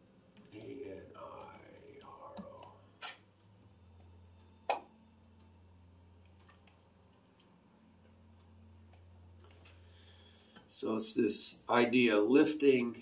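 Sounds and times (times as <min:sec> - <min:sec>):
low steady hum: 0:00.0 - 0:13.0
computer mouse clicking: 0:06.2 - 0:07.5.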